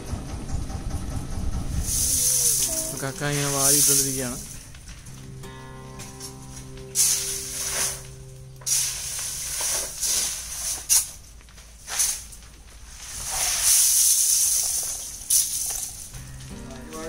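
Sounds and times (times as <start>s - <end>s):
shells pouring with hissing rush: 1.8s - 4.7s, 6.9s - 16.2s.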